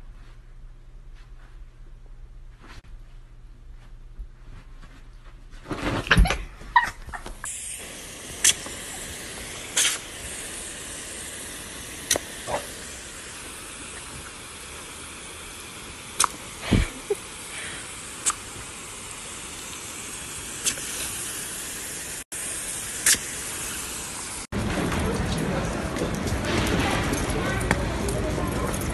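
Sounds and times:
hose water spraying: 0:07.2 - 0:26.0.

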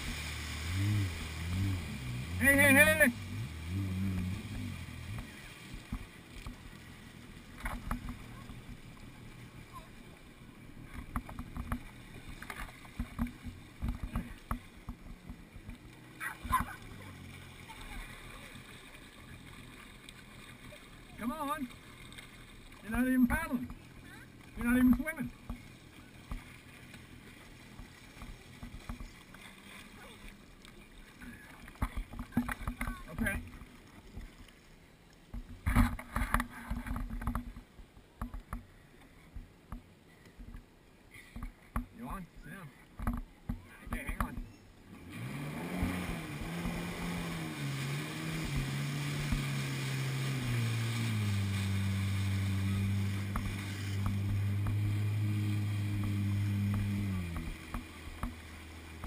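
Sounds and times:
water slapping against hull: 0:00.0 - 0:42.0, 0:42.8 - 0:59.0
jet ski engine hum: 0:00.0 - 0:59.0.

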